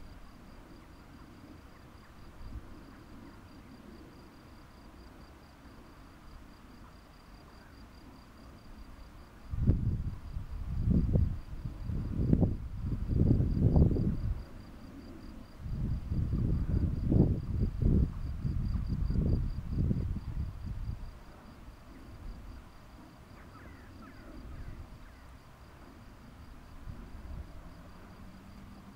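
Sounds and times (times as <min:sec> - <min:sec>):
wind buffeting microphone: 0:09.5 - 0:21.2, 0:26.5 - 0:28.9.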